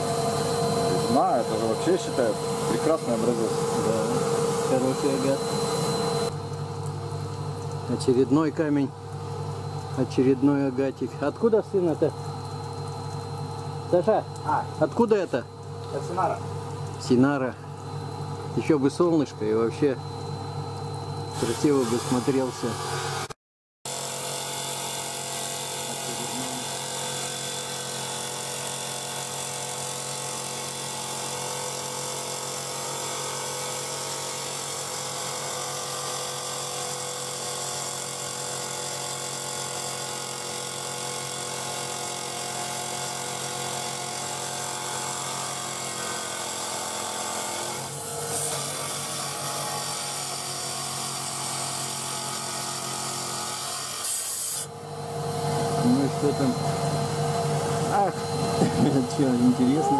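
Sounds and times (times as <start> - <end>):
saw grinding through stone: 0.0 - 6.3, 21.3 - 54.7, 55.4 - 57.0, 57.6 - 59.9.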